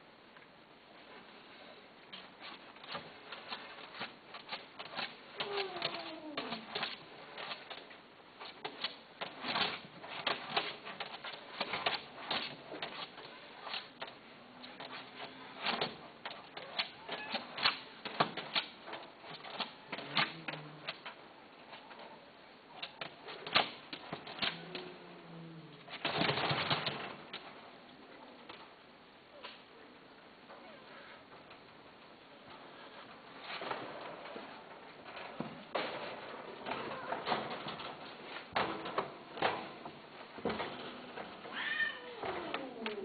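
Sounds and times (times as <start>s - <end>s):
rapid irregular clicking and tapping: 2.1s - 22.1s, 25.8s - 27.6s
cat meow: 5.4s - 6.6s, 41.5s - 43.0s.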